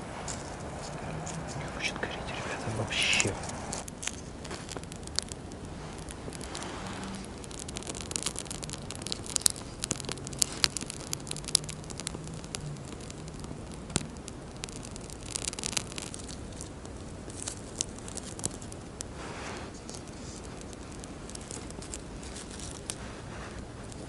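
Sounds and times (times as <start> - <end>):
fire crackling and popping: 0.0 - 24.0.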